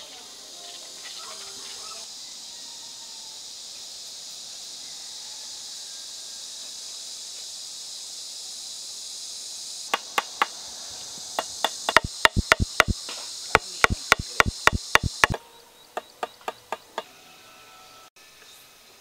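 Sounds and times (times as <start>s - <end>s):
steady high hiss: 0.0s - 19.0s
knife handle tapping on branch: 11.4s - 13.0s, 13.6s - 15.4s.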